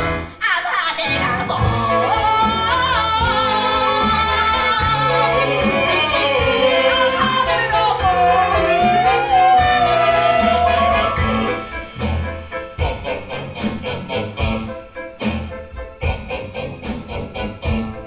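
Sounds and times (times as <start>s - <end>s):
band playing: 0.0s - 0.4s, 1.1s - 18.0s
high voice singing with vibrato: 0.5s - 11.9s
stepping bass line: 1.5s - 18.0s
percussion hits: 1.6s - 18.0s.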